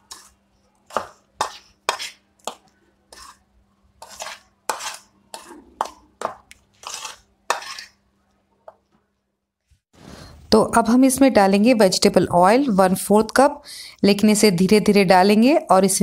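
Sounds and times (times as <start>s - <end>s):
spoon scraping a plate: 0.0s - 3.4s, 4.0s - 6.1s, 6.8s - 8.0s.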